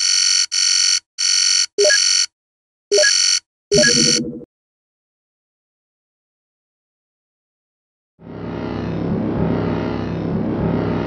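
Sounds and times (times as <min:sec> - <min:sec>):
harsh high-pitched buzzer: 0:02.9 - 0:04.4
lower-pitched tone: 0:08.2 - 0:11.0.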